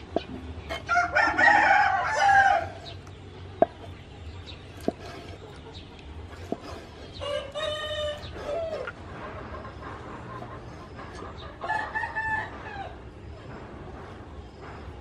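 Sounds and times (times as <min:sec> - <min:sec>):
rooster crowing: 0:00.7 - 0:02.9, 0:07.2 - 0:08.8, 0:11.6 - 0:13.0.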